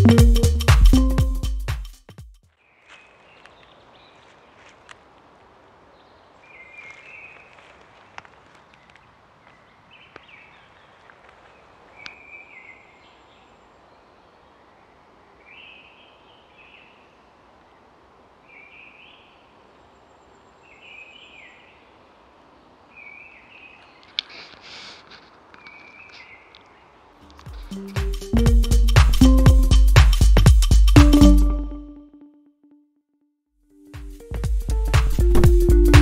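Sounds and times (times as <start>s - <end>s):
songbird singing: 2.5s - 5.0s, 5.7s - 29.9s
background hiss: 2.8s - 30.9s.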